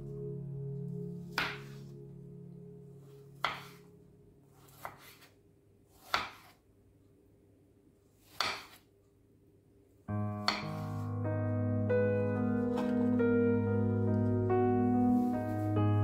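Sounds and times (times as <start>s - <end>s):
knife slicing onto wooden board: 3.4s - 3.8s, 4.6s - 6.6s, 8.2s - 8.8s.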